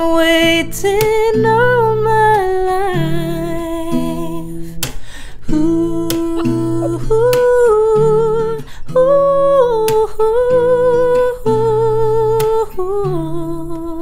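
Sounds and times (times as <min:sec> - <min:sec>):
acoustic guitar chords: 0:00.0 - 0:14.0
man humming with vibrato: 0:06.2 - 0:07.3.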